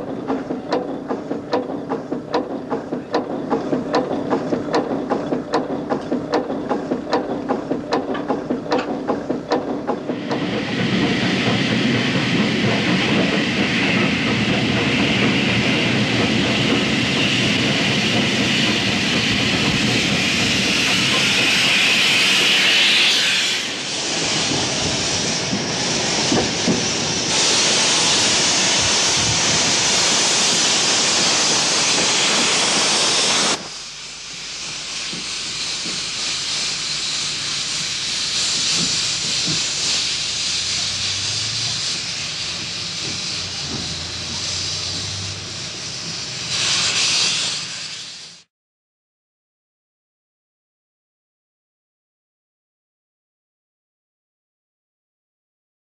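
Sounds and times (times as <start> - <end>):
steam locomotive running: 0.0 - 48.5
loud hiss of escaping steam: 10.1 - 48.5.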